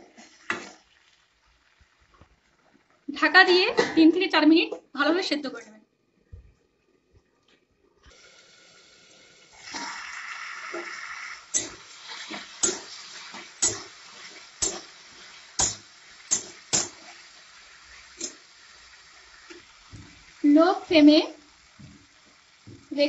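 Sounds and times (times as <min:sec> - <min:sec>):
curry bubbling in a pan: 0:00.0 - 0:03.6, 0:08.1 - 0:23.0
metal spatula knocking against pan: 0:15.6 - 0:17.0.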